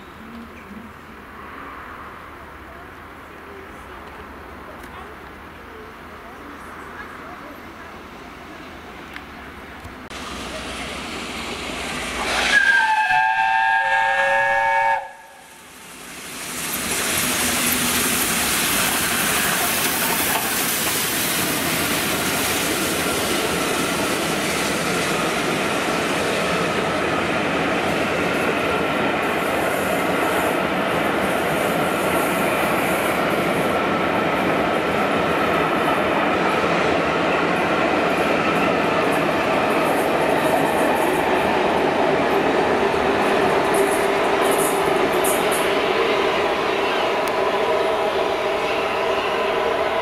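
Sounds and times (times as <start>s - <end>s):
train passing with rumble: 0.0s - 50.0s
high steam hiss: 10.1s - 37.0s, 37.6s - 50.0s
steam locomotive whistle: 12.2s - 15.6s.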